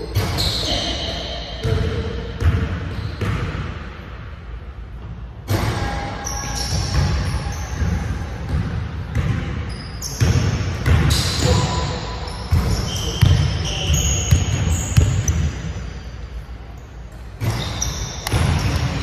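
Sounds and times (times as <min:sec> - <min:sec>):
sneaker squeaks: 0:00.0 - 0:03.6, 0:05.5 - 0:19.0
basketball bouncing on hardwood: 0:06.7 - 0:09.6.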